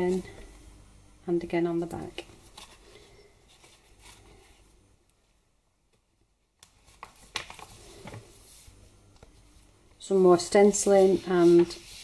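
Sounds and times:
paper pages rustling: 2.2 - 4.7, 6.6 - 9.4, 10.8 - 12.0.

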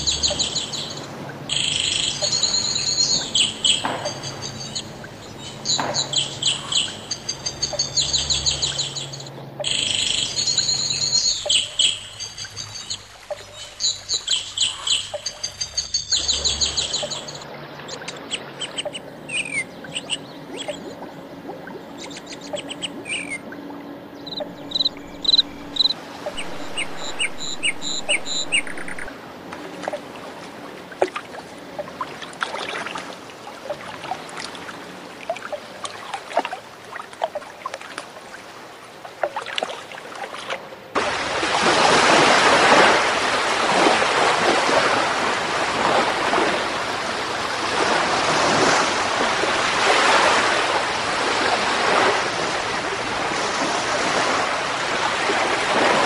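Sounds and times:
ocean surf roaring: 0.0 - 11.0, 16.3 - 37.0, 40.6 - 56.0
birds chirping: 0.0 - 29.1.

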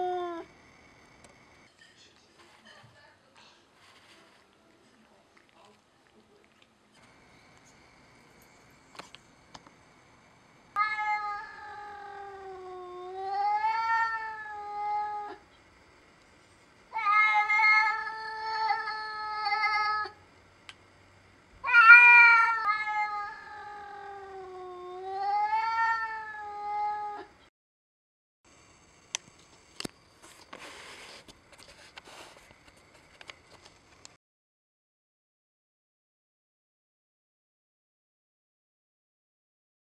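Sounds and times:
cat yowling: 0.0 - 0.5, 10.8 - 15.4, 16.9 - 20.2, 21.6 - 27.3.

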